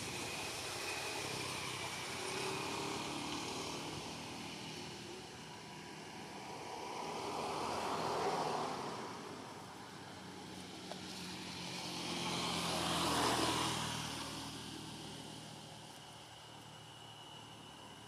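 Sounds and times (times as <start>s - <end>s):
distant engine passing: 6.4s - 18.0s.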